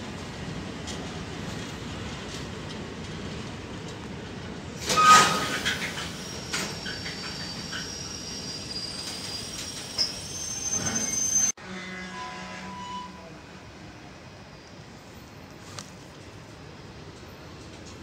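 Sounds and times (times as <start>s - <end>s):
train wagons rumbling: 0.0s - 11.6s
high-pitched wheel squeal: 4.9s - 13.4s
metallic screech: 4.9s - 13.4s.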